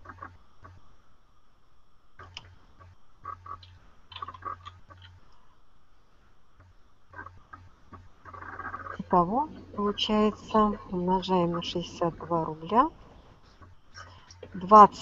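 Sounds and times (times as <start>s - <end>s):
low electrical hum: 0.0s - 15.0s
computer mouse clicks: 2.2s - 2.6s, 3.3s - 5.2s.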